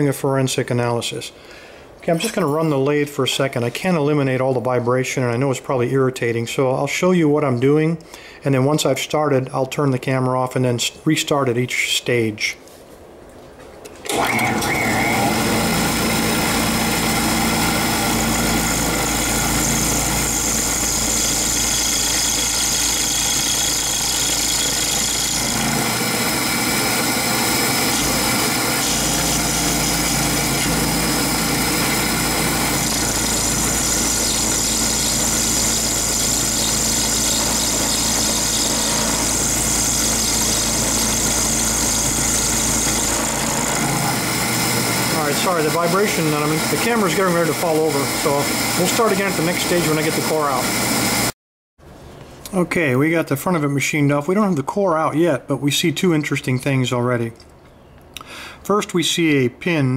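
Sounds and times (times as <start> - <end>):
high-pitched cutting whine: 14.1 - 51.3
milling machine humming: 14.1 - 51.3.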